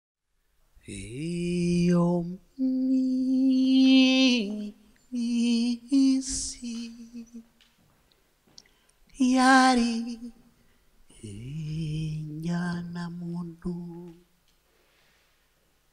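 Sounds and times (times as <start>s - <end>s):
man singing unaccompanied: 0.8s - 7.5s, 9.1s - 10.5s, 11.1s - 14.4s.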